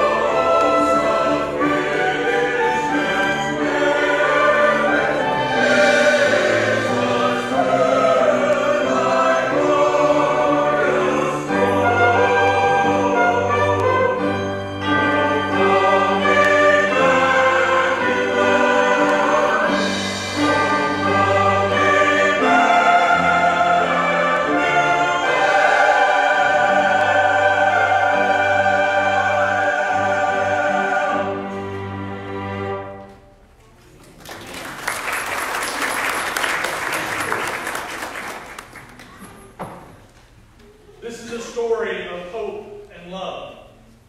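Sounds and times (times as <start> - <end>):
choir singing with orchestra: 0.0 - 33.3
audience applauding: 33.9 - 39.2.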